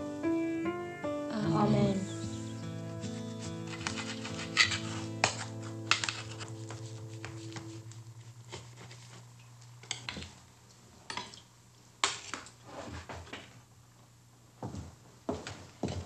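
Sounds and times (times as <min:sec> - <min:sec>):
held music chord: 0:00.0 - 0:03.8
plates and cutlery clinking: 0:03.6 - 0:06.5.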